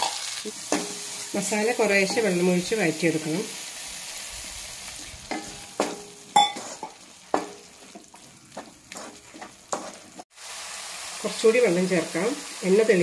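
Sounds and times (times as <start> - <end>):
sauce sizzling: 0.0 - 13.0
wooden spatula scraping pan: 7.8 - 10.2.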